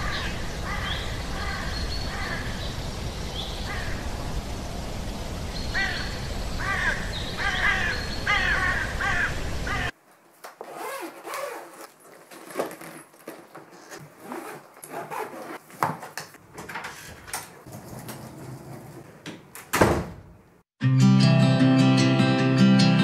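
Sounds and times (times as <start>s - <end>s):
suitcase wheels on wooden floor: 10.1s - 19.4s
door shutting: 16.6s - 20.3s.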